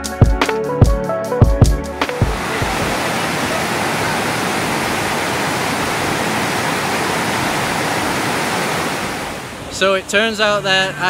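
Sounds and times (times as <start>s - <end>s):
background music: 0.0s - 3.6s
water rushing down waterfall: 2.0s - 11.0s.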